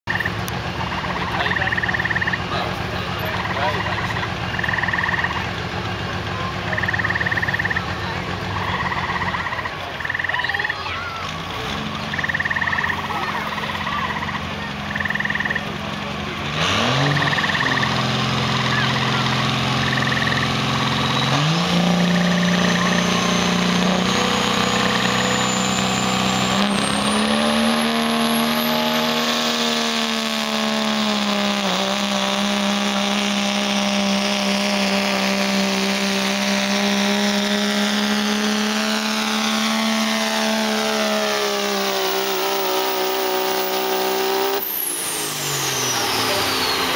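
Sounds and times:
turbo whine: 0.0s - 5.6s, 6.4s - 10.9s, 12.0s - 15.8s, 16.8s - 46.9s
diesel truck engine revving: 0.0s - 46.9s.

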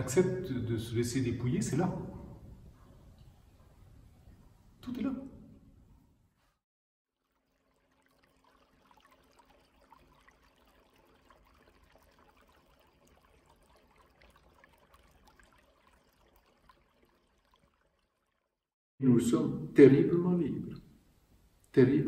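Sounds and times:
fountain trickling and bubbling: 7.1s - 18.7s.

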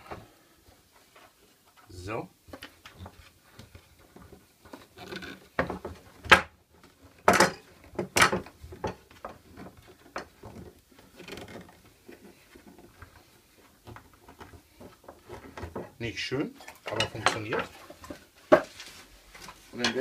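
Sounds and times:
clamps clacking on wood: 7.1s - 13.1s, 16.6s - 18.7s.

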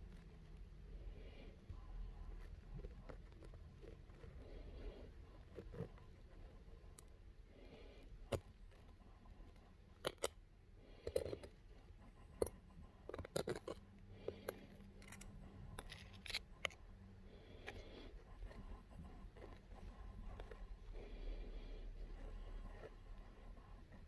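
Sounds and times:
faint steady hum: 0.0s - 24.0s
phone handling clicks and scrapes: 12.4s - 16.8s.

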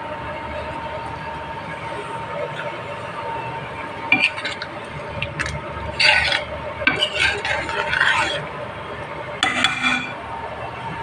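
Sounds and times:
metal ladle scraping a pan: 4.1s - 8.5s, 9.4s - 10.2s.

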